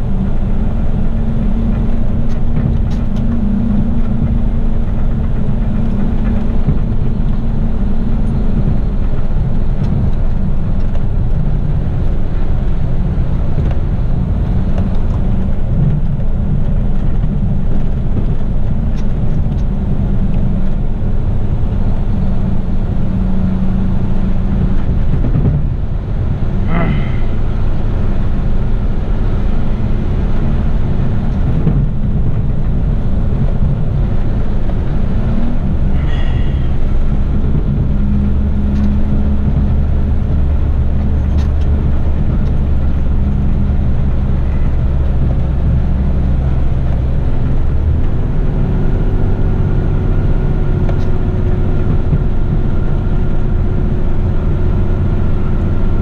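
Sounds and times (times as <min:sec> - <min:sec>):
road noise: 0:00.0 - 0:56.0
truck diesel engine running: 0:00.0 - 0:56.0.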